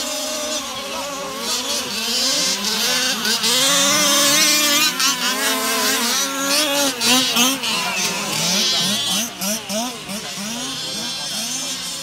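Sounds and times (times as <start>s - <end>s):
rc car engines racing: 0.0s - 12.0s.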